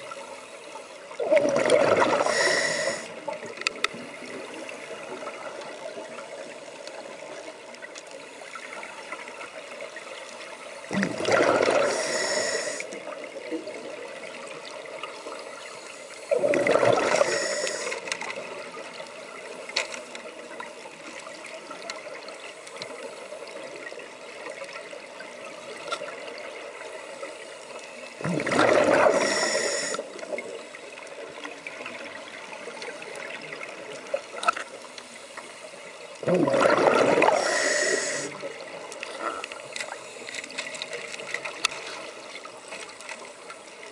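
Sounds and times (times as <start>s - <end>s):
faint underwater hiss: 0.0s - 43.9s
rush of bubbles underwater: 1.1s - 6.5s, 10.9s - 15.0s, 16.3s - 18.9s, 28.2s - 30.6s, 36.2s - 39.6s.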